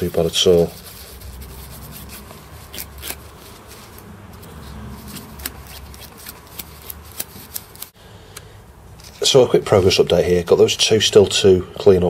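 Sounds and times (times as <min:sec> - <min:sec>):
sandpaper rubbing on metal: 0:00.0 - 0:07.9.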